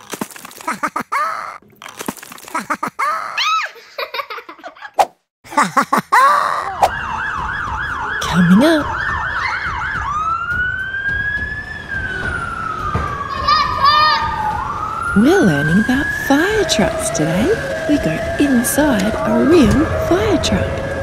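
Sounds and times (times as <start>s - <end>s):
fire engine siren: 6.8s - 21.0s
person's voice: 8.2s - 8.9s, 15.2s - 20.7s.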